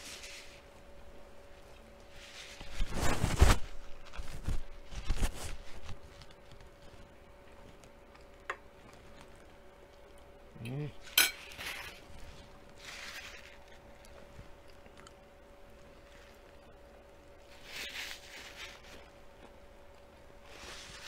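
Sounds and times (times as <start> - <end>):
mouth and chewing noises: 5.8 - 10.4, 12.5 - 17.4.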